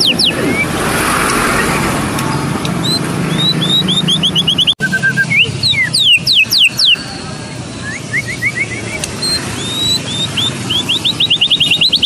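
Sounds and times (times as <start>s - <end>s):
bird whistling song: 0.0s - 0.8s, 2.8s - 7.0s, 7.7s - 12.0s.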